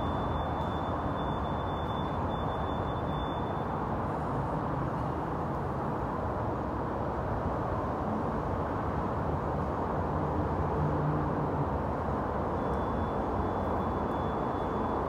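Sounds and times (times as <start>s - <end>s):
faint high steady tone: 0.0s - 3.8s, 12.6s - 15.0s.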